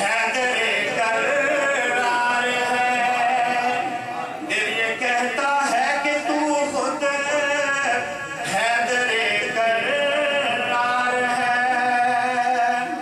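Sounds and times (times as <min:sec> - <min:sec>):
man singing unaccompanied chant: 0:00.0 - 0:13.0.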